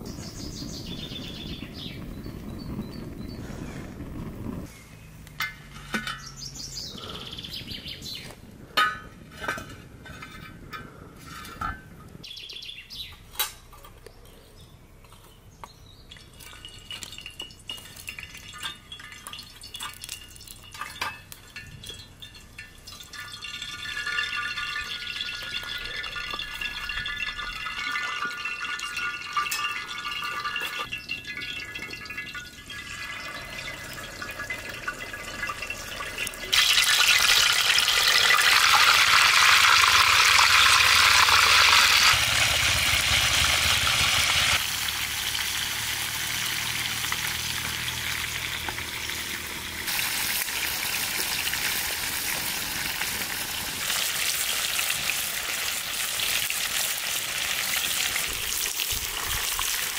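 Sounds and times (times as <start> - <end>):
birds chirping and singing: 0.0 - 4.1, 6.1 - 8.4, 12.2 - 16.4
kitchen utensils clinking: 16.1 - 42.1.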